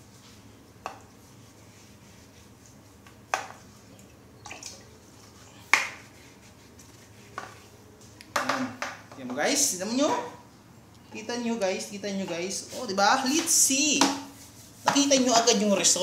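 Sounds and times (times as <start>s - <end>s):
drips into toilet water: 4.4s - 4.8s.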